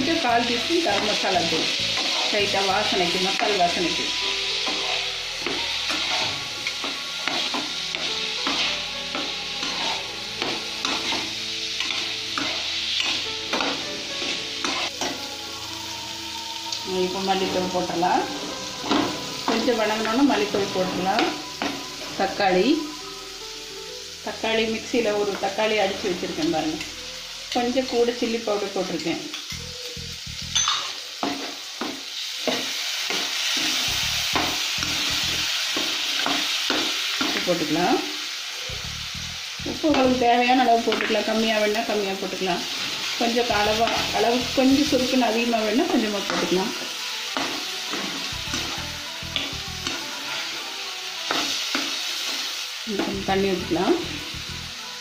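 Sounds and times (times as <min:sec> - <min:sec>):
potatoes sizzling in oil: 0:00.0 - 0:55.0
spatula scraping a pan: 0:00.9 - 0:15.2.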